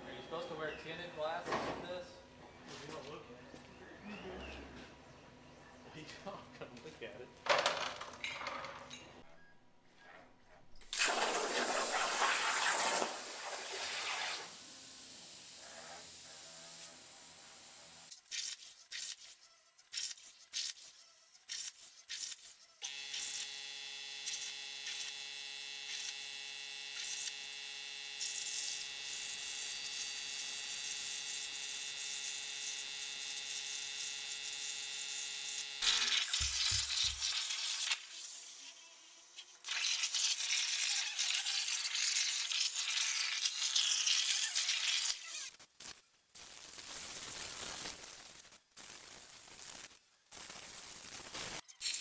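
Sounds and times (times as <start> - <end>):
plasma torch hiss: 10.9 - 14.6.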